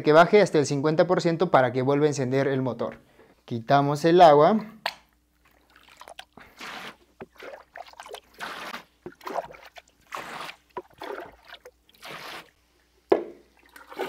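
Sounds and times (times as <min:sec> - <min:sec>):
water sloshing and splashing: 0:05.4 - 0:12.6, 0:13.5 - 0:14.0.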